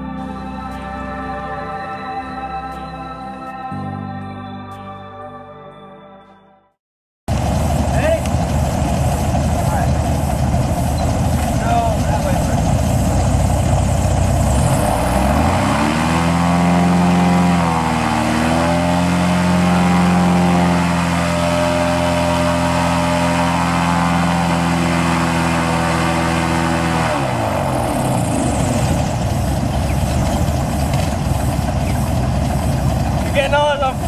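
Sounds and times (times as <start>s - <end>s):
airboat engine and propeller revving: 7.3s - 34.0s.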